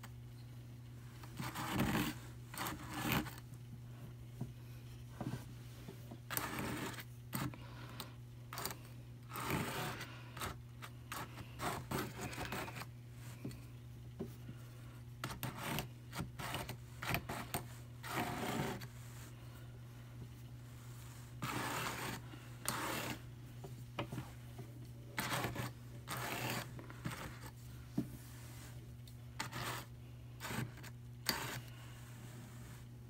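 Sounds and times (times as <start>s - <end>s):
metal pick scratching carding cloth: 8.5s - 12.9s, 21.1s - 23.3s, 25.2s - 27.6s, 29.4s - 31.8s.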